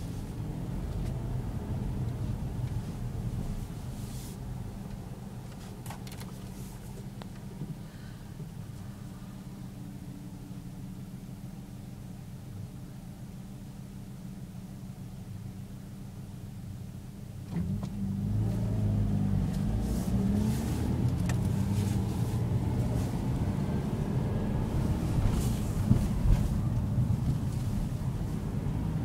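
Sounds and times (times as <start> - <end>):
car engine accelerating: 17.5 - 29.0
tyre and road noise: 17.6 - 29.0.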